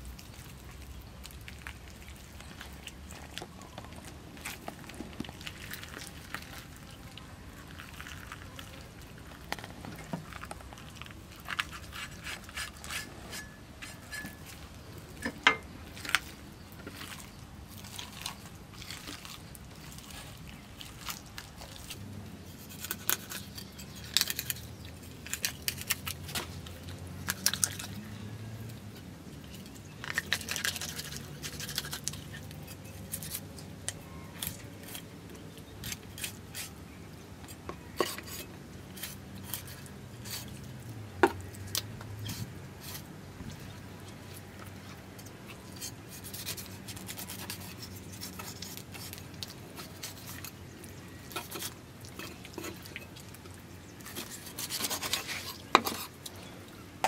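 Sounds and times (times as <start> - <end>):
wet crackles of fish guts pulled: 0.0 - 12.9, 15.8 - 22.0.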